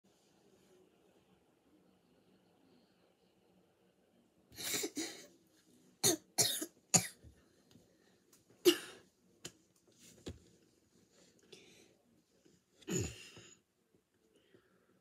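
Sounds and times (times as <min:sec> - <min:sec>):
child coughing: 0:06.0 - 0:07.2, 0:08.6 - 0:09.0, 0:12.9 - 0:13.4.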